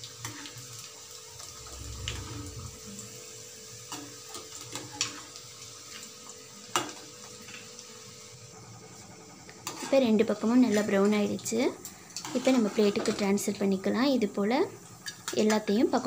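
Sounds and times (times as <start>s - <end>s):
fritters sizzling in oil: 0.0s - 16.0s
metal spoon scraping pan: 12.2s - 13.2s.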